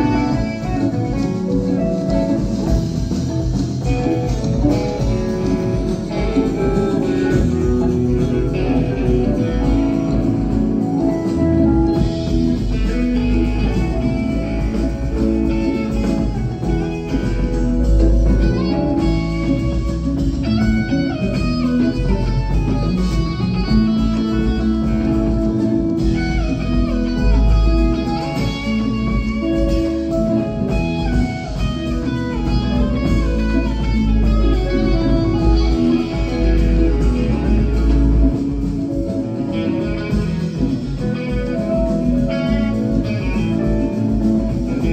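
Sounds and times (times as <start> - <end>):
bass: 0.0 - 44.9
congas: 0.0 - 44.9
drums: 0.0 - 44.9
electric guitar: 0.0 - 44.9
keyboard: 0.0 - 44.9.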